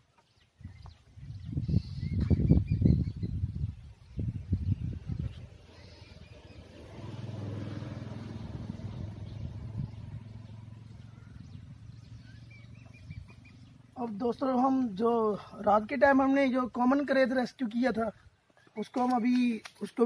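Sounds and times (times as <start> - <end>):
vehicle engine passing by: 4.9 - 14.0.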